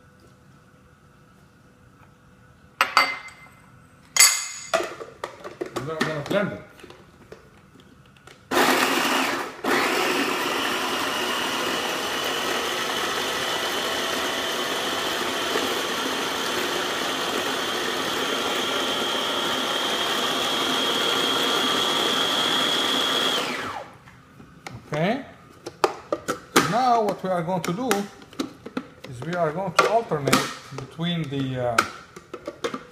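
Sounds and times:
food processor motor whining: 0:08.5 - 0:24.0.

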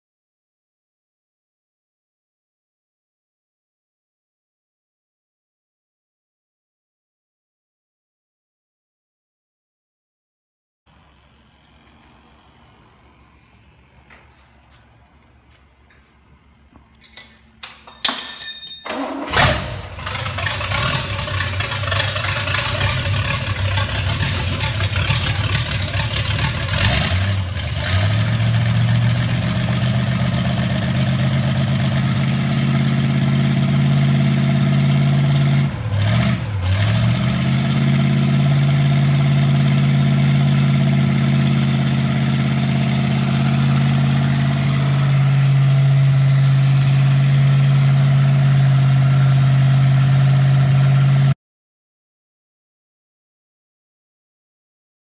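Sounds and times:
boat engine starting and idling: 0:18.9 - 0:51.3.

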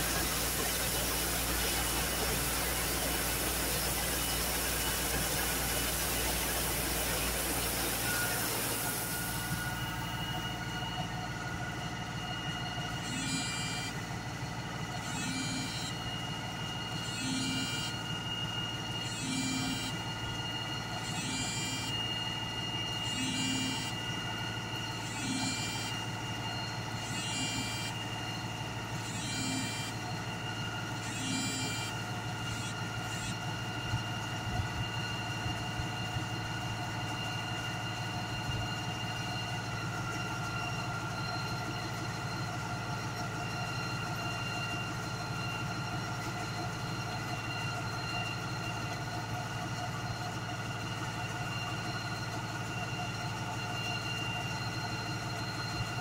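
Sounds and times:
regular pulsing sound: 0:00.0 - 0:11.0, 0:17.0 - 0:30.1, 0:31.0 - 0:33.4
sewer jetter droning: 0:00.0 - 0:56.0.

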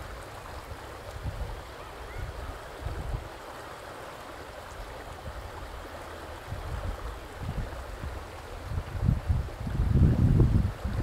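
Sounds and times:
river water flowing: 0:00.0 - 0:11.0
wind buffeting microphone: 0:06.4 - 0:11.0.

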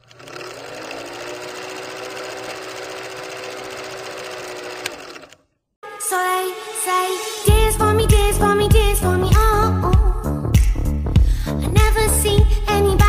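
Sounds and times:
film projector mechanical clatter: 0:00.0 - 0:05.4
motor hum: 0:00.0 - 0:05.4.

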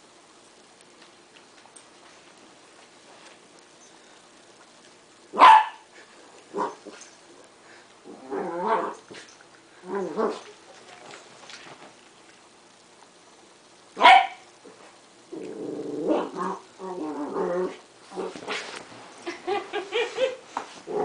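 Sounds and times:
dogs barking: 0:05.4 - 0:05.8, 0:14.0 - 0:14.4.

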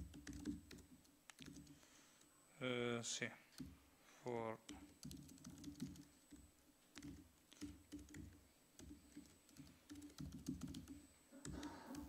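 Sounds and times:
keyboard typing clicks: 0:00.0 - 0:01.8, 0:04.7 - 0:12.0.

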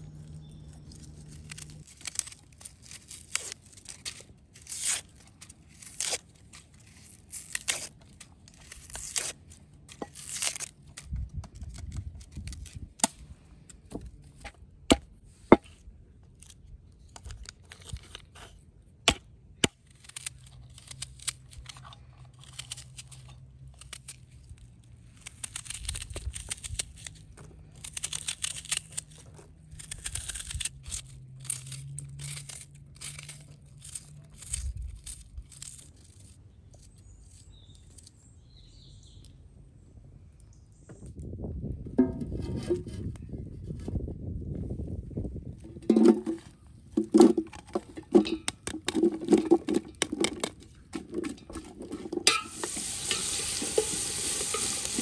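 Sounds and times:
crinkling and rustling: 0:00.1 - 0:13.0, 0:45.6 - 0:55.0
onion skin tearing: 0:00.4 - 0:13.2, 0:16.4 - 0:38.1, 0:49.7 - 0:55.0
walnut shells cracking: 0:19.7 - 0:38.1, 0:45.9 - 0:55.0.

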